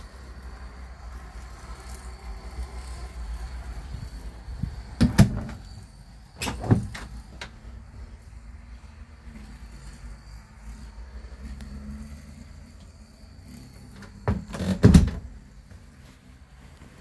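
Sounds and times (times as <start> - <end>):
door knocks and latch clicks: 5.0 - 5.6.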